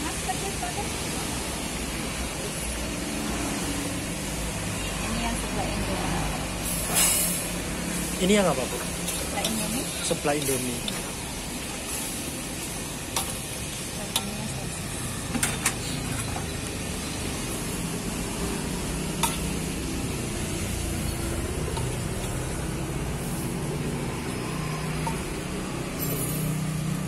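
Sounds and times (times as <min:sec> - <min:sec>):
ladle scraping metal wok: 0:06.6 - 0:23.5
soup simmering and sizzling: 0:06.6 - 0:27.0
ladle clinking against wok: 0:19.2 - 0:19.6.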